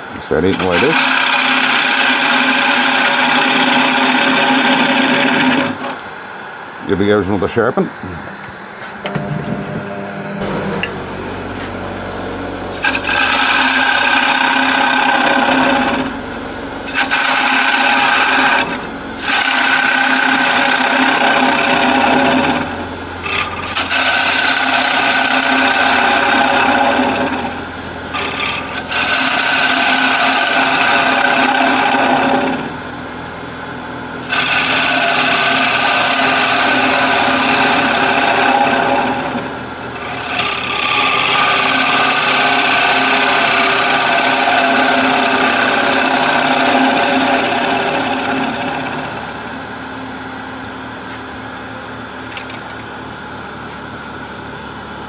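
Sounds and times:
wood lathe running: 0.0s - 6.1s, 9.0s - 32.9s, 34.1s - 49.8s
gouge cutting wood on lathe: 0.3s - 6.0s, 12.7s - 16.2s, 16.8s - 32.8s, 34.2s - 49.5s.

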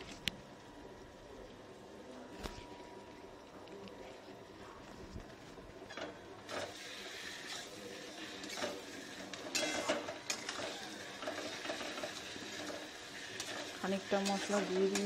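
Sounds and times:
spatula scraping a pan: 5.9s - 15.0s.

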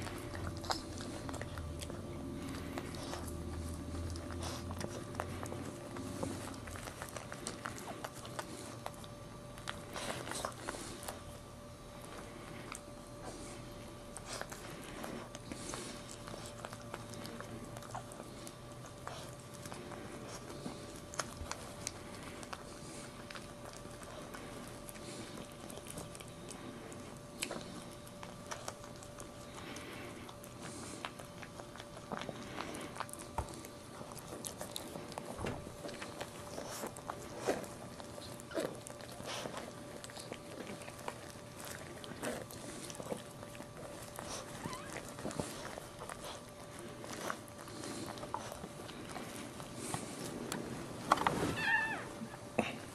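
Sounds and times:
dog licking puppy: 0.0s - 52.9s
faint steady hum: 0.0s - 52.9s.

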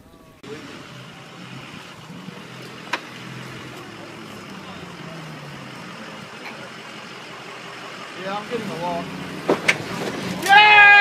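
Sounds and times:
truck engine at low revs: 0.0s - 10.9s.

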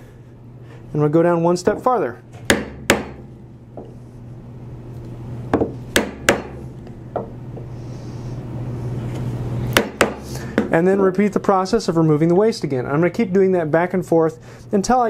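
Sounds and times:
steady low hum: 0.0s - 15.0s
mallet striking chisel into wood: 2.5s - 3.9s, 5.5s - 6.6s, 9.7s - 10.7s.

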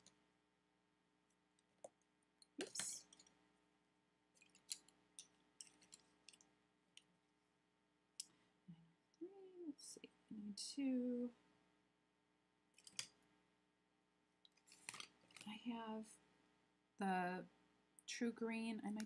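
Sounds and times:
colored pencils clicking together: 2.6s - 3.3s, 4.4s - 7.1s, 12.8s - 13.2s, 14.5s - 15.5s
pencils rattling: 2.6s - 3.3s, 4.4s - 6.5s, 14.6s - 15.5s.

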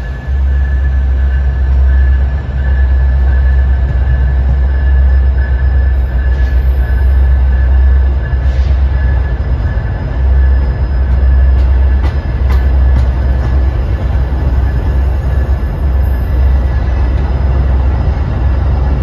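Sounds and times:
thin steady whine: 0.0s - 19.0s
train cars rumbling past: 0.0s - 19.0s
wheels clicking over rail joints: 11.1s - 14.0s.

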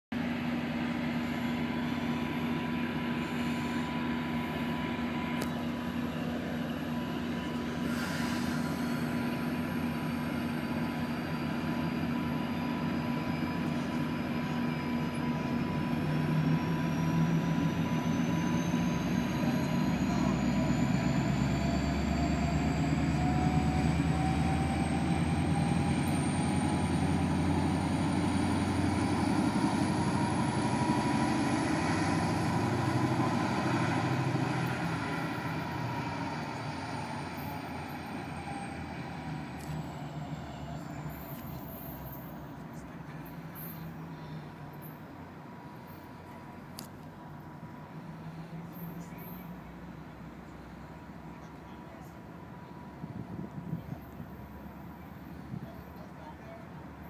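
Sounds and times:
diesel locomotive engine: 0.1s - 57.0s
thin rising whine: 0.2s - 44.1s.

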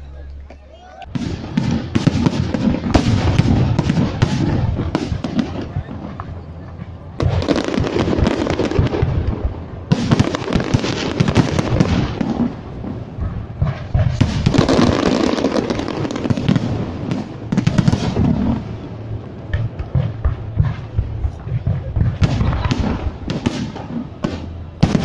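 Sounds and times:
firework crackle: 0.0s - 25.0s.

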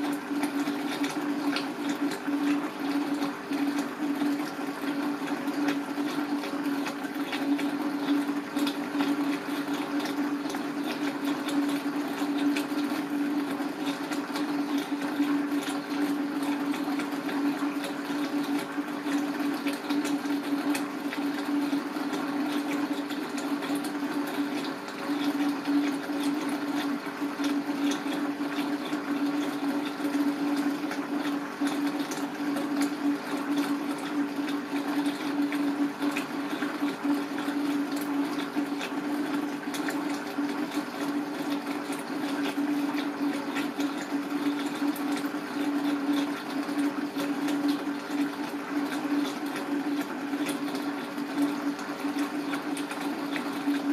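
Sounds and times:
watery noise: 0.0s - 53.9s.

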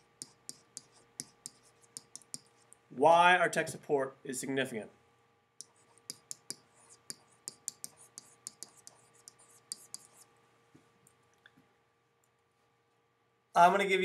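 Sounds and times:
faint steady hum: 0.0s - 14.0s
stylus tapping on writing surface: 0.2s - 2.5s, 5.6s - 10.1s.

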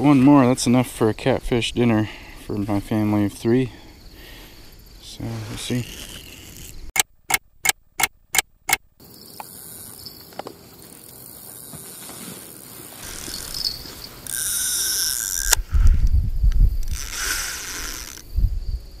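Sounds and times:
rod handling noise: 5.2s - 6.9s, 9.4s - 16.0s, 16.8s - 18.3s
fishing reel line running: 5.7s - 6.8s, 9.4s - 10.0s, 12.5s - 15.8s, 16.8s - 18.3s.

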